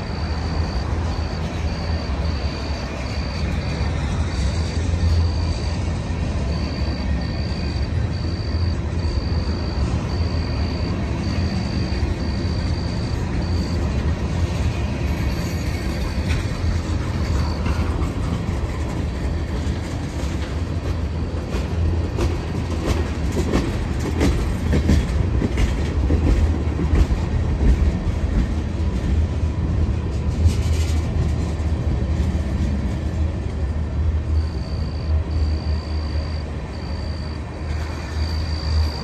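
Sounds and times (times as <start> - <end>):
train wheels rumbling on rails: 0.0 - 39.0
wheels clicking over rail joints: 13.9 - 33.7.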